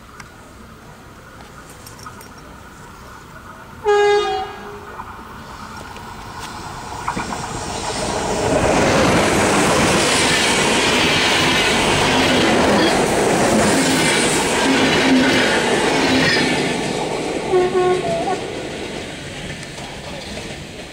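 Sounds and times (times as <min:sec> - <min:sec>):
train wheels rushing on rails: 0:00.0 - 0:20.9
clickety-clack over rail joints: 0:04.9 - 0:20.9.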